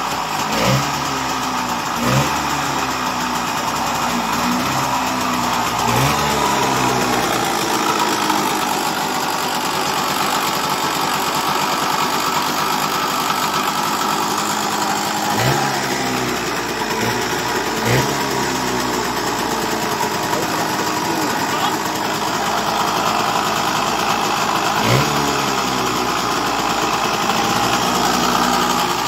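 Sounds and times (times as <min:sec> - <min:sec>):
two-stroke motorcycle engine revving: 0:00.0 - 0:29.0.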